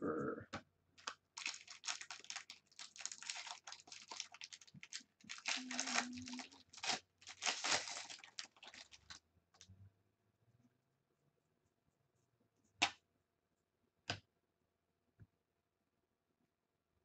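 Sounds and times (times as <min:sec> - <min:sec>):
foil wrapper tearing and crinkling: 0:01.0 - 0:09.2.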